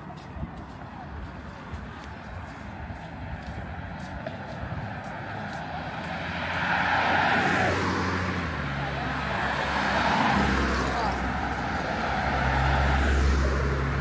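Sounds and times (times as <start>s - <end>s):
vehicle passing close by: 2.8s - 14.0s.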